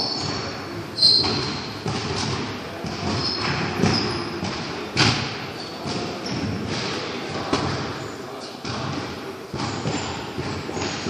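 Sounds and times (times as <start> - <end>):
dull thuds in echoing hall: 0.0 - 11.0
faint murmur of voices: 0.0 - 11.0
brief high squeaks: 1.0 - 1.5.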